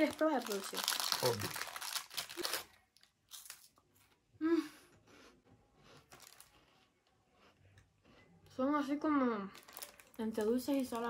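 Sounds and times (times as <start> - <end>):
wrapper crinkling: 0.0 - 3.8, 6.1 - 6.5, 9.5 - 11.0
cookie crunching: 0.0 - 4.2, 5.4 - 8.5, 9.5 - 11.0.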